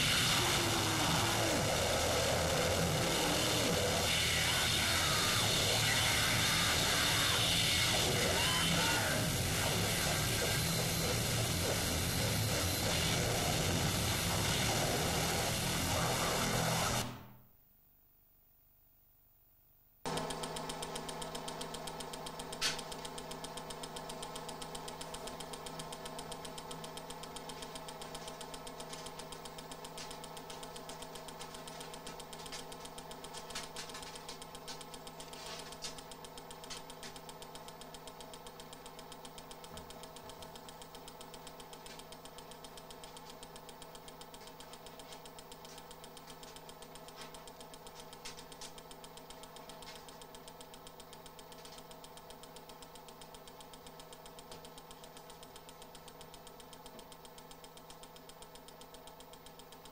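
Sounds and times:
pulsing machine-like drone: 0.0 - 17.2
sharp click: 22.2 - 23.2.

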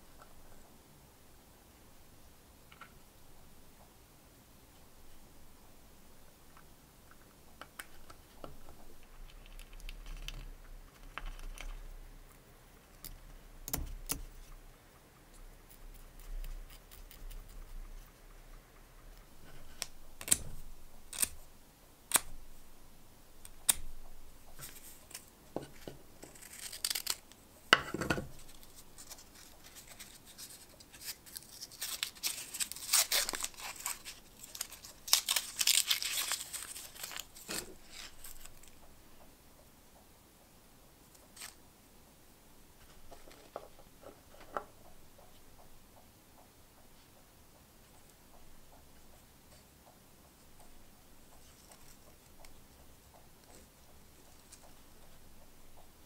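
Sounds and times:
rustling and tearing of wadding: 26.2 - 27.4, 28.4 - 38.8.

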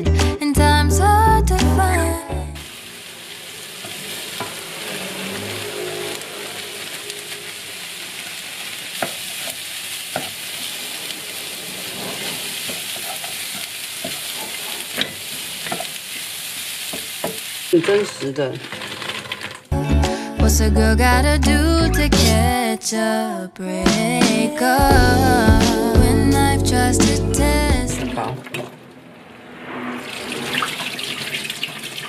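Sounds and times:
onion sizzling in oil: 2.6 - 19.7
wooden spatula scraping pan: 3.8 - 8.4, 11.2 - 15.9.

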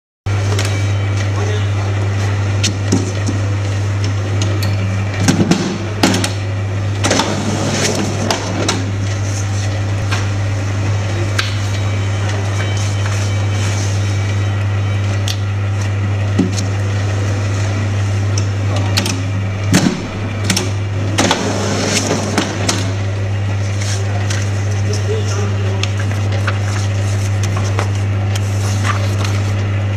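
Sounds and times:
steady low hum: 0.3 - 29.9.

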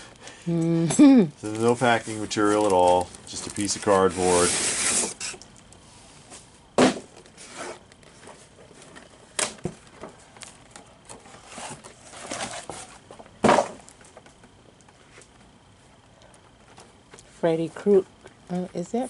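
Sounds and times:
cardboard scraping and rustling: 1.6 - 5.4, 6.2 - 13.8.

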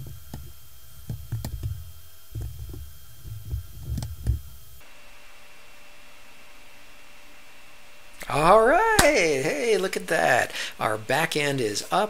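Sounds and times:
low hum: 0.0 - 5.0, 8.0 - 11.1.

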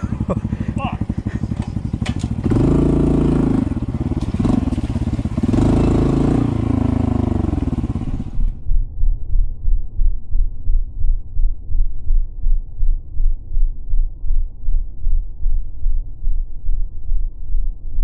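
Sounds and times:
motorcycle engine revving: 0.0 - 8.6
deep muffled throbbing: 0.0 - 18.0.

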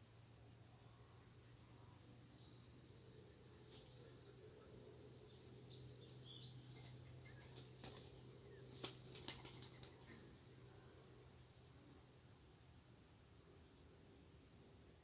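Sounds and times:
dove wings flapping: 6.7 - 10.2.

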